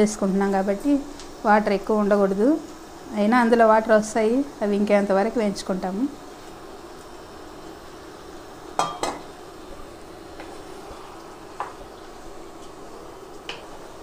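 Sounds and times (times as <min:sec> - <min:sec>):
prawns and onions sizzling in pan: 0:00.0 - 0:14.0
sharp knocks on pan: 0:08.8 - 0:09.2.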